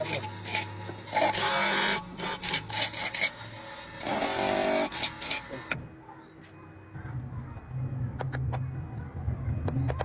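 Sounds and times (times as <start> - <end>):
wood rasping on grinding disc: 0.0 - 5.8.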